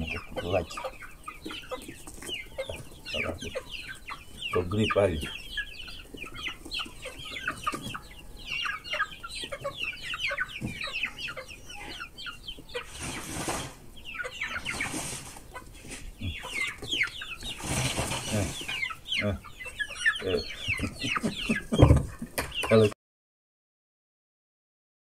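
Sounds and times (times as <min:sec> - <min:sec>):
chicks peeping and clucking: 0:00.0 - 0:23.0
rustling: 0:12.8 - 0:19.0.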